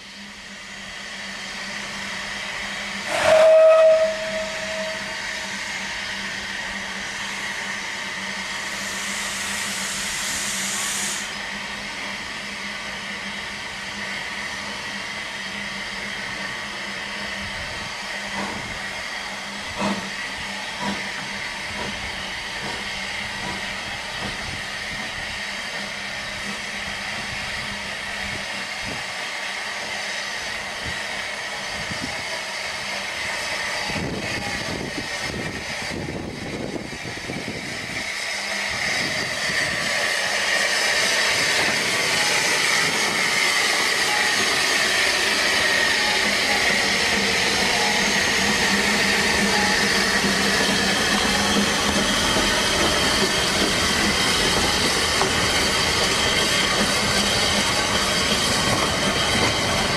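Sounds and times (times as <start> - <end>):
steam hissing: 0.0 - 59.9
steam whistle blast: 3.0 - 5.6.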